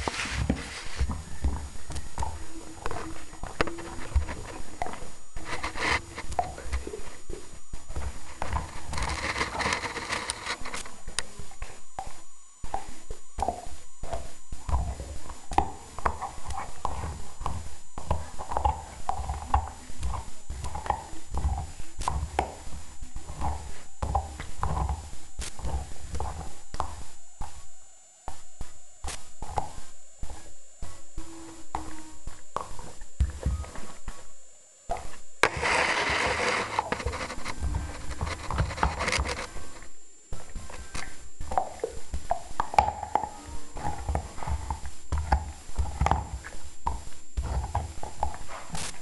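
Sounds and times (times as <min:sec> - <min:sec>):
dog gnawing a bone: 0:35.5 - 0:39.6.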